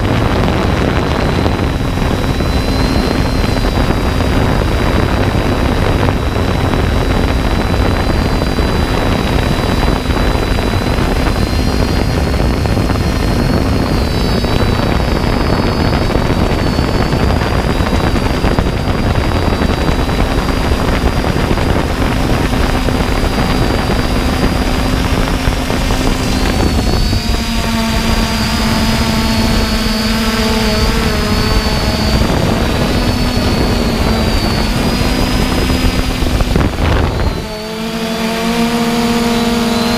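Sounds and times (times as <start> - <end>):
drone propellers whining: 0.0 - 39.9
lower whining tones: 0.0 - 39.9
wind rumble on microphone: 0.0 - 39.9.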